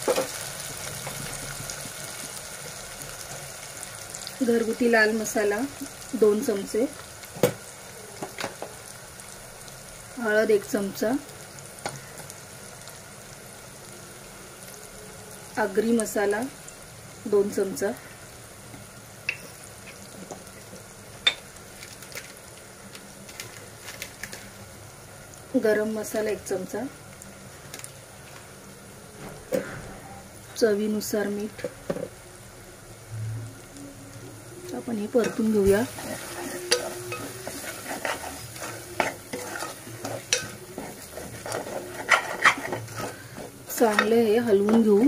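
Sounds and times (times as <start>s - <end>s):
oil sizzling in a cooker: 0.0s - 29.7s, 30.3s - 45.0s
metal spoon scraping pot: 35.2s - 44.1s.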